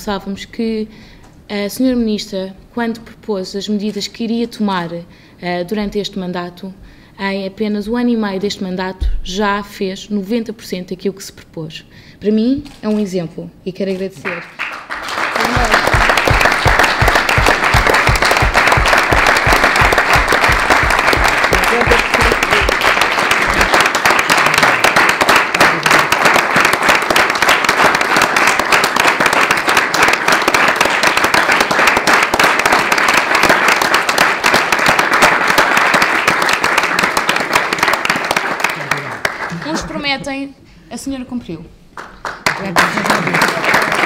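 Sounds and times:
people applauding: 14.1s - 40.1s, 42.0s - 44.0s.

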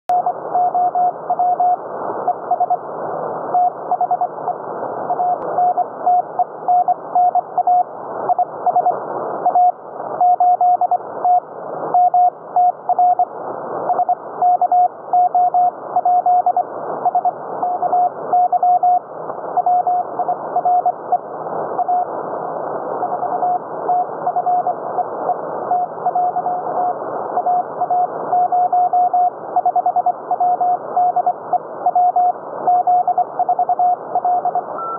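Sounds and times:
morse code tone: 31.9s - 34.9s.

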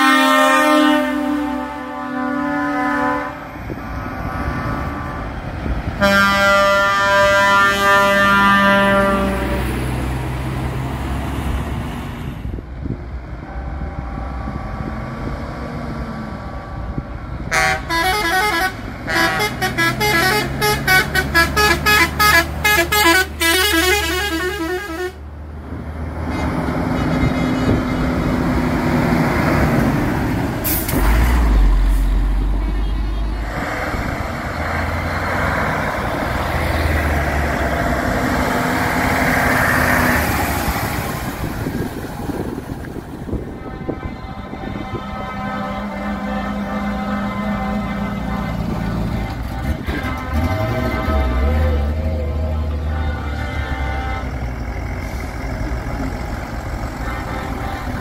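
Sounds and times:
truck air horn playing notes: 0.0s - 3.8s, 6.0s - 9.9s, 17.5s - 25.3s, 43.3s - 56.2s, 56.8s - 58.0s
truck diesel engines passing: 0.0s - 58.0s.

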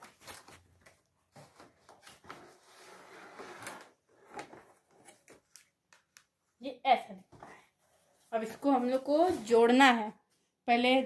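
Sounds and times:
plastic wrapping rustling: 0.0s - 2.7s.

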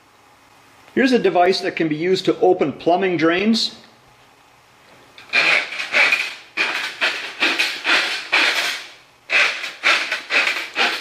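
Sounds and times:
steel cable rattling and scraping: 5.2s - 11.0s.

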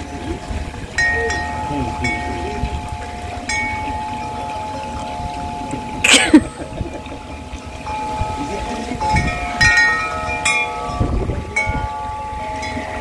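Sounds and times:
chimes ringing: 1.0s - 6.6s.

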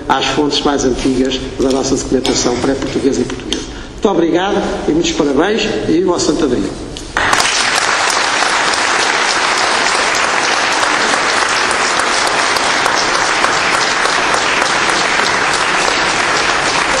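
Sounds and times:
audience applauding: 7.2s - 17.0s.

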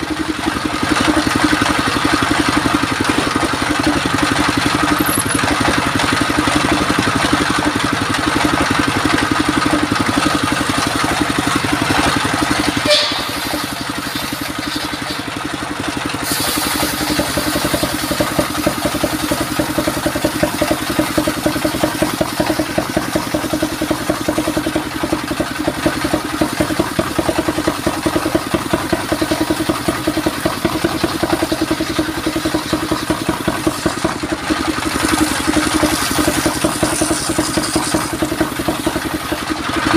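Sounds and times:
stationary engine pulsing: 0.0s - 39.9s
circular saw cutting wood: 8.4s - 24.3s, 29.6s - 39.9s.

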